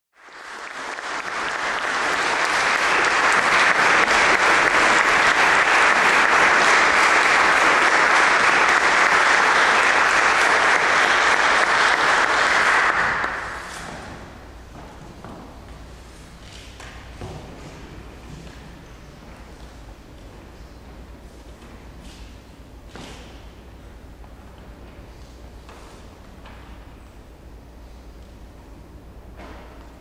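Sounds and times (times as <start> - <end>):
audience applauding: 0.2 - 14.1.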